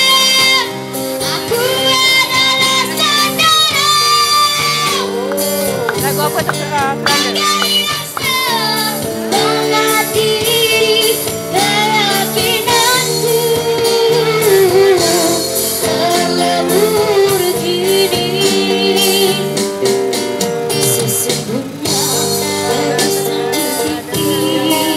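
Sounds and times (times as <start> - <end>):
girl singing with vibrato: 0.0 - 19.6, 21.5 - 24.9
band of guitars and keyboard: 0.0 - 24.9.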